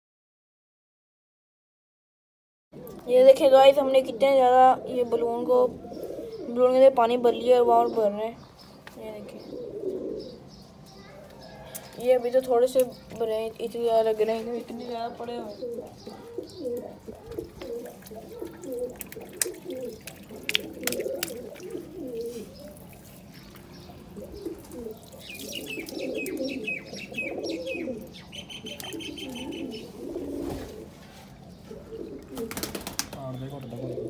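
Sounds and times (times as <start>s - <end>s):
pigeons cooing: 2.8s - 8.4s, 9.0s - 12.8s, 13.6s - 34.0s
high bird chirps: 21.0s - 29.9s.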